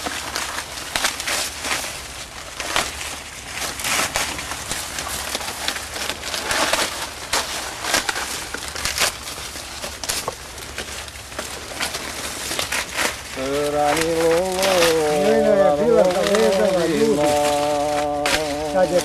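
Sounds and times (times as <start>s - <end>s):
dry cornstalks rustling and crackling: 0.0s - 19.0s.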